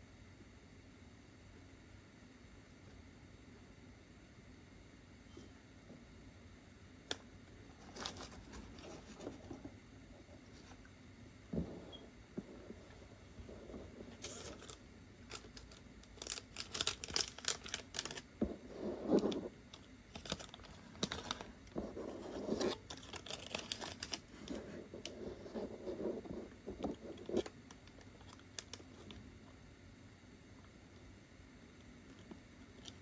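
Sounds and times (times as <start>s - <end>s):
packaging rustling: 14.1s - 18.3s, 20.1s - 21.7s, 22.6s - 24.6s.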